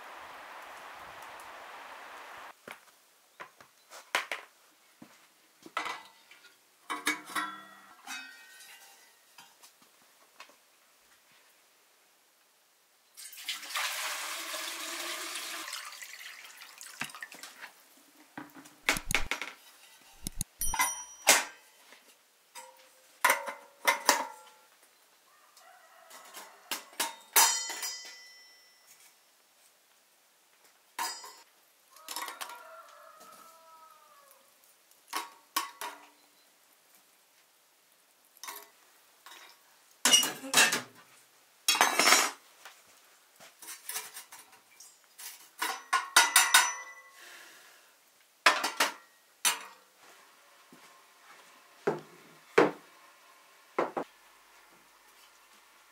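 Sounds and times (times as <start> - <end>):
running water: 0.0 - 2.5, 13.3 - 17.9
dishes and utensils clinking: 6.9 - 9.6, 19.0 - 21.8, 26.2 - 29.1, 31.0 - 31.4, 39.3 - 40.9, 41.7 - 42.4, 43.6 - 47.2, 48.5 - 49.8.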